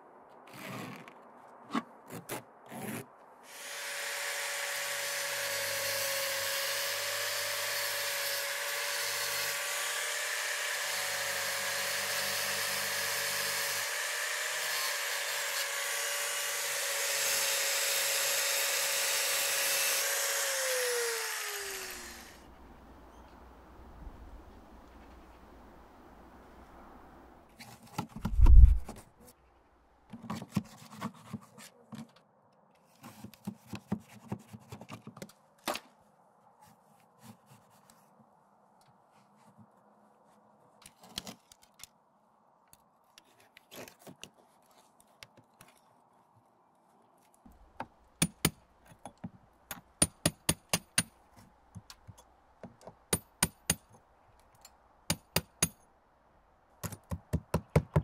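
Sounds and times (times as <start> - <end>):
chisel chipping render: 48.2 - 49.0, 49.7 - 51.1, 55.1 - 55.8, 56.8 - 58.0.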